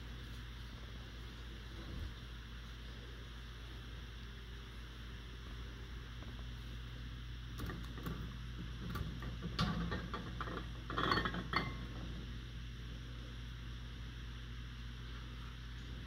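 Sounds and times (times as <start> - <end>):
steady low hum: 0.0 - 16.0
glass jars clinking: 10.4 - 11.9.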